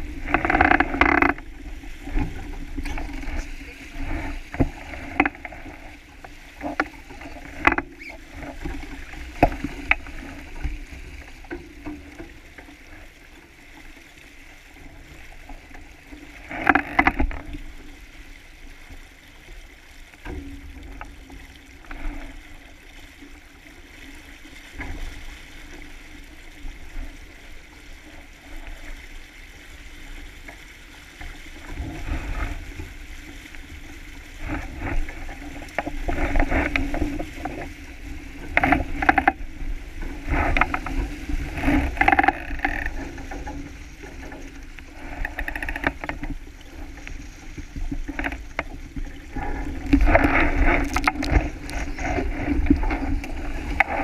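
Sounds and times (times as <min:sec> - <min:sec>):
water splashing along hull: 0:00.0 - 0:54.0
rigging clicks: 0:44.7 - 0:46.4.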